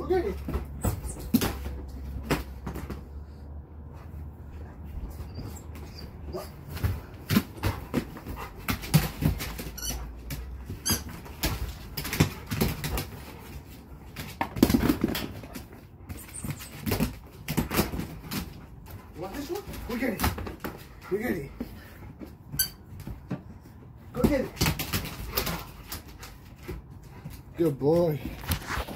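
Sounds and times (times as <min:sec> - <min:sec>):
dog thuds and scuffles on floor: 0:00.1 - 0:03.4, 0:28.2 - 0:28.9
squeaky toy squeaks: 0:09.6 - 0:10.1, 0:10.7 - 0:11.2, 0:22.5 - 0:22.9.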